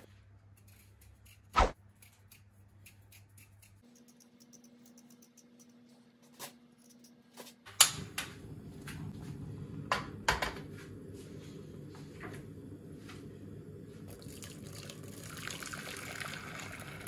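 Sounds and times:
burner flame rumbling: 0:07.9 - 0:15.1.

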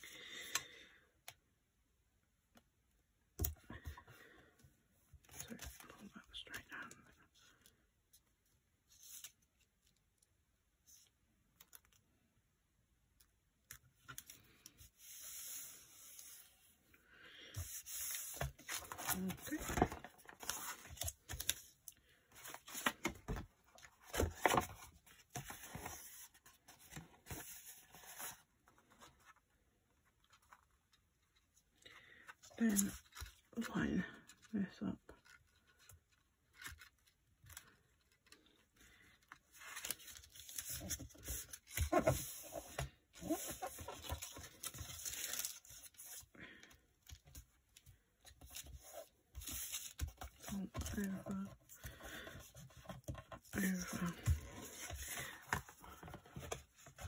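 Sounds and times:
paper rustling and scraping: 0:14.1 - 0:16.7, 0:22.3 - 0:29.4, 0:39.0 - 0:46.3, 0:48.2 - 0:57.0
paper rustling and sliding: 0:14.3 - 0:16.7, 0:39.5 - 0:46.2.

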